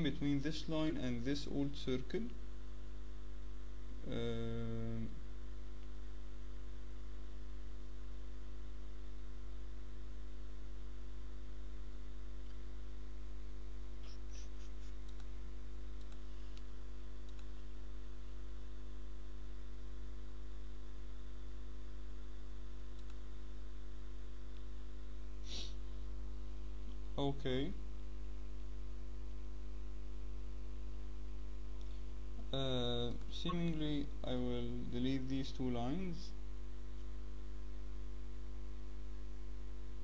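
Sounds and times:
electrical mains hum: 0.0 - 40.0
computer mouse clicks: 15.0 - 15.3, 16.0 - 17.6, 22.9 - 23.2.

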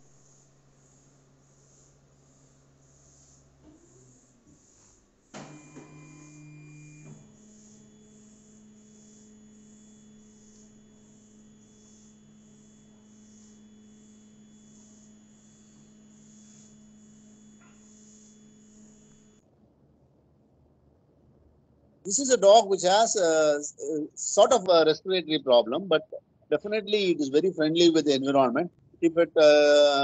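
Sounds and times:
low electrical hum: 5.3 - 30.0
faint pulsing high hiss: 22.1 - 30.0.

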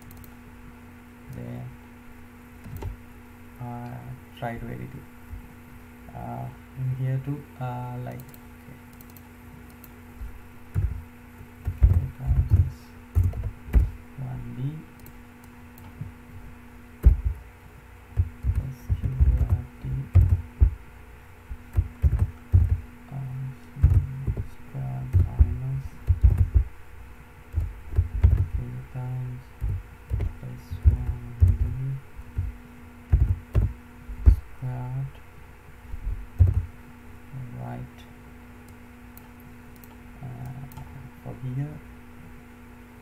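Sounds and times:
keyboard typing: 0.0 - 0.3, 2.6 - 3.0, 8.2 - 10.0, 11.6 - 13.9, 17.0 - 17.4, 18.2 - 20.8, 21.7 - 22.8, 23.8 - 24.5, 25.1 - 26.7, 27.5 - 28.7, 29.6 - 31.8, 33.1 - 34.4, 36.4 - 36.7
steady low hum: 0.0 - 43.0.

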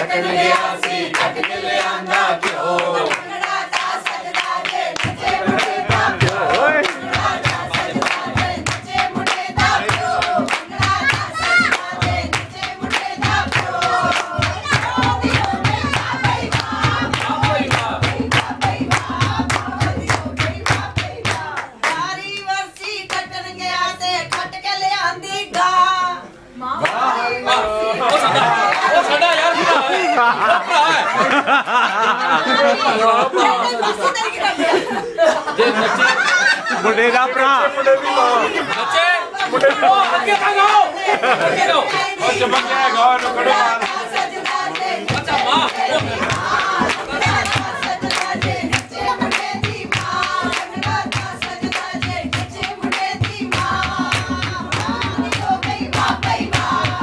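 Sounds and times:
rhythmic hand clapping: 0.0 - 23.5, 28.0 - 29.8, 38.6 - 57.0
group singing folk song: 0.0 - 36.8, 38.0 - 57.0.

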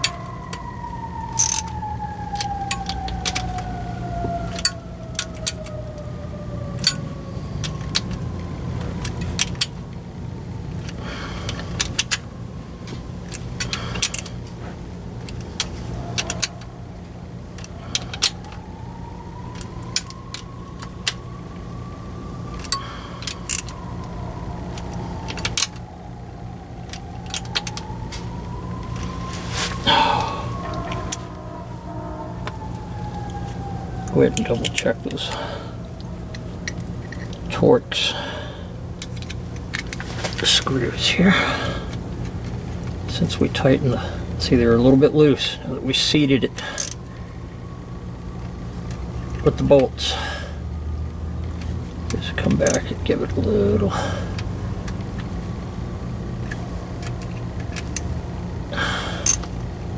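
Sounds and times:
low hum: 0.0 - 44.8
wrench clicking on bolts: 1.3 - 3.7, 4.5 - 5.8, 6.8 - 7.0, 8.8 - 9.8, 10.8 - 12.3, 13.3 - 14.4, 15.2 - 16.6, 22.5 - 25.8, 46.6 - 47.0, 56.4 - 58.1, 59.2 - 59.5
gliding tone: 23.5 - 35.0.

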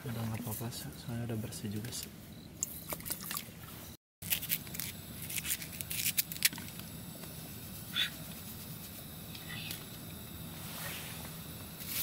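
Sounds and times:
sharp clicks and crunchy handling: 4.2 - 6.9.

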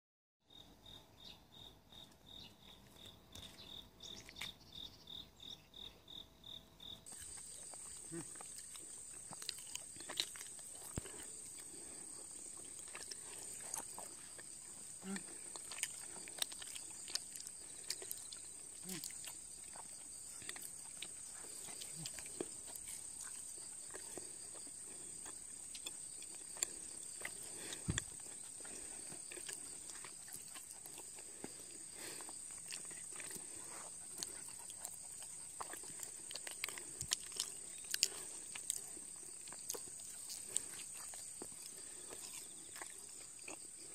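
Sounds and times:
puppy grunting and snuffling: 7.2 - 17.8, 26.7 - 38.6.

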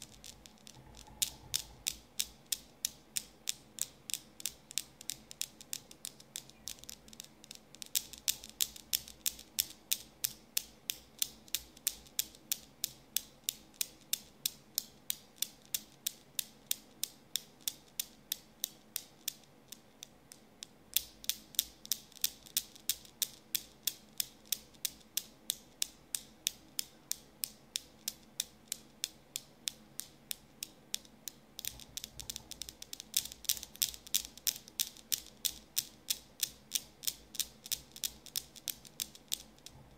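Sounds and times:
newton's cradle balls clacking: 0.0 - 15.9, 20.0 - 39.8.

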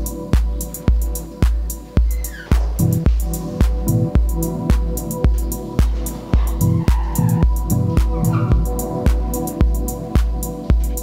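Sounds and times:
deep bass: 0.0 - 11.0
kick drum beat: 0.0 - 11.0
sustained synth notes: 2.6 - 10.5.

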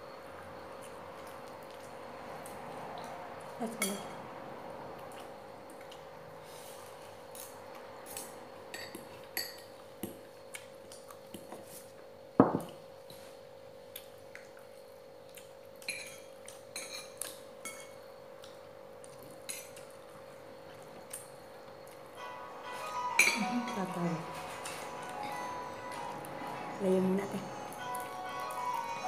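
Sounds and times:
chewing crunchy food: 9.0 - 12.0, 13.0 - 17.6, 18.2 - 22.1
steady hum: 19.8 - 29.0
plates clinking: 23.1 - 26.2.

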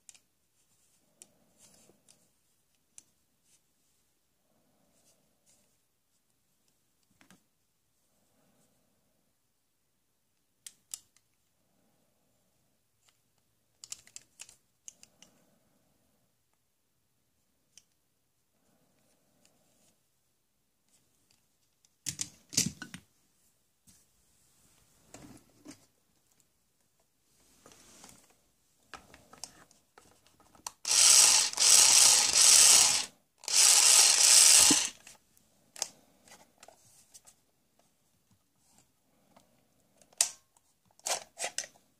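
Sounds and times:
plastic toy clicks: 30.6 - 35.0.

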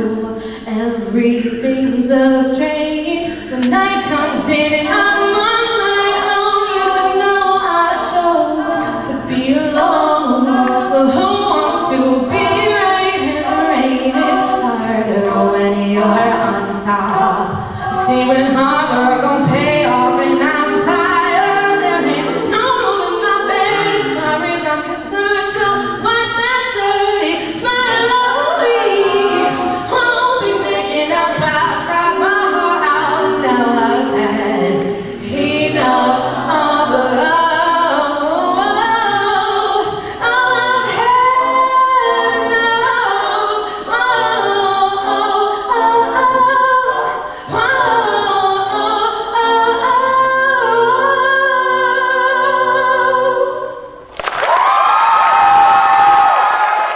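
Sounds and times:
woman singing lead: 0.0 - 54.0
sung backing harmonies: 0.0 - 56.9.

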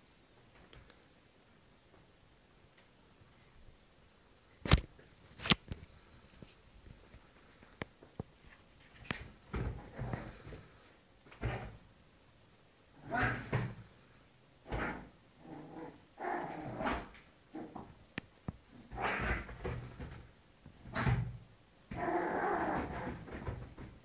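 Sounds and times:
dogs growling: 13.0 - 13.6, 14.6 - 17.9, 18.8 - 20.0, 21.9 - 23.4.

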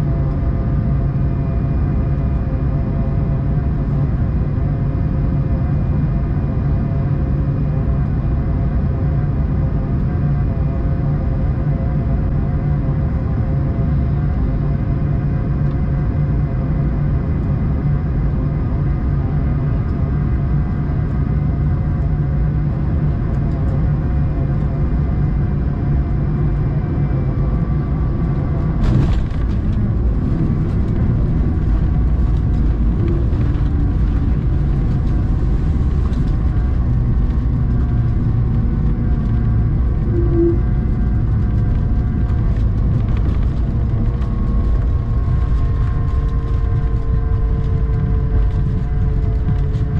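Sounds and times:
aircraft cabin roar: 0.0 - 49.9
runway rumble: 22.7 - 49.9.

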